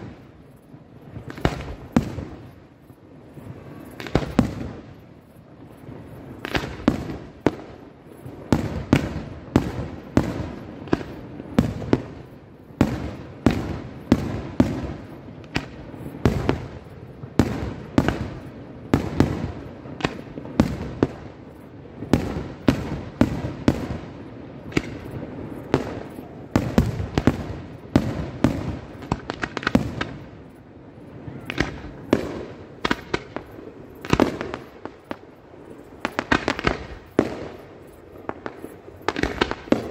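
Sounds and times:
firework shells bursting: 0:24.6 - 0:39.9.

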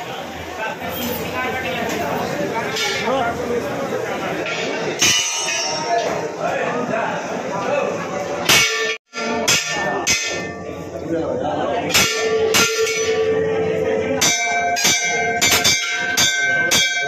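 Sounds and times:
brass bells clanging: 0:12.0 - 0:17.0.

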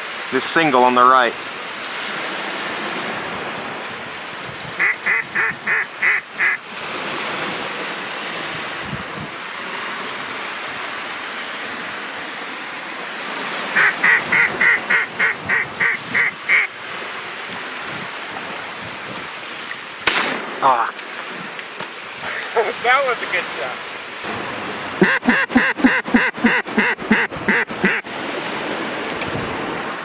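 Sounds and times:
small waves lapping: 0:00.0 - 0:30.0
duck call quacks: 0:04.8 - 0:06.6, 0:13.8 - 0:16.7, 0:25.0 - 0:28.0.

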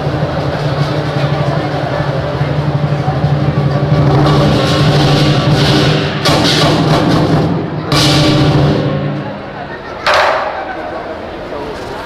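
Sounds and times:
large drum beating: 0:00.0 - 0:10.6
cymbal crashes: 0:04.0 - 0:09.5.

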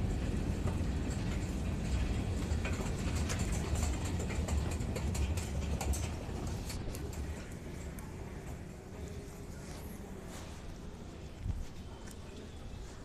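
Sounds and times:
escalator mechanical rumble: 0:00.0 - 0:10.2.

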